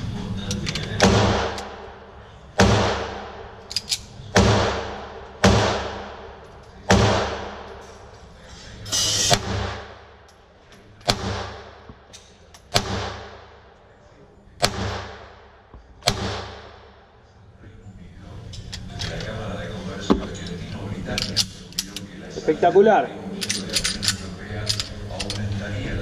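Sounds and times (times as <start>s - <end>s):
pistol shots echoing: 0.9s - 1.9s, 2.6s - 3.6s, 4.3s - 7.7s, 11.0s - 11.9s, 12.7s - 13.6s, 14.6s - 16.9s.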